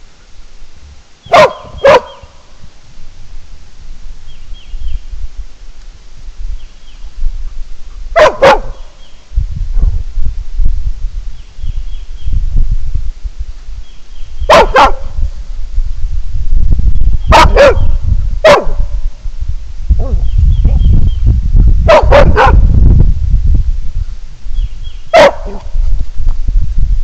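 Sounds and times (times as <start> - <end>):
steady low rumble: 0.0 - 27.0
dog barking: 1.3 - 2.2, 8.2 - 8.8, 14.5 - 15.1, 17.3 - 18.8, 21.9 - 22.7, 25.2 - 25.7.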